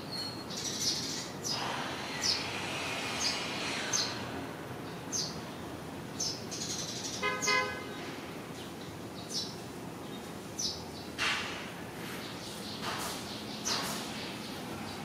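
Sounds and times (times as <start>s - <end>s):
traffic hum: 0.0s - 15.0s
vehicle horn toot: 7.2s - 8.0s.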